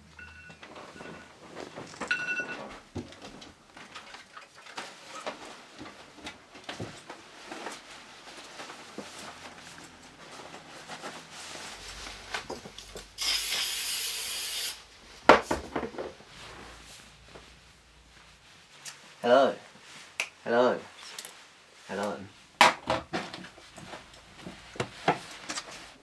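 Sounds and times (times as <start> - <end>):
clothes rustling: 0.2 - 13.2, 16.0 - 26.0
aerosol spray hiss: 13.2 - 14.8.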